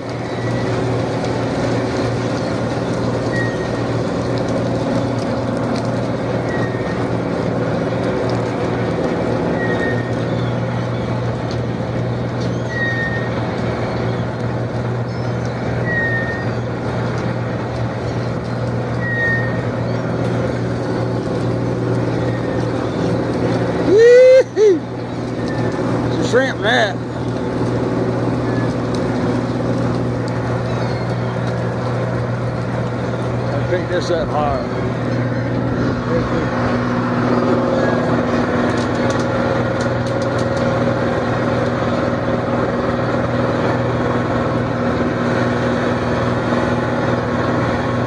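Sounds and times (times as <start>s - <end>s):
boat engine humming: 0.0s - 48.0s
short high squeak: 3.3s - 3.8s, 9.6s - 10.1s, 12.5s - 13.4s, 15.8s - 16.6s, 19.0s - 19.7s.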